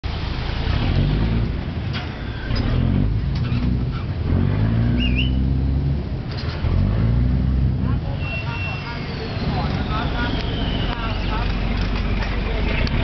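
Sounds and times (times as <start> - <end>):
high warbling whistle: 5.0 - 5.4, 8.2 - 11.4
boat engine droning: 7.1 - 13.0.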